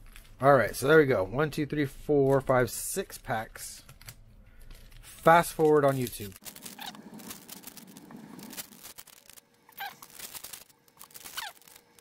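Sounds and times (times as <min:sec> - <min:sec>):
foil wrapper tearing and crinkling: 0:04.7 - 0:12.0.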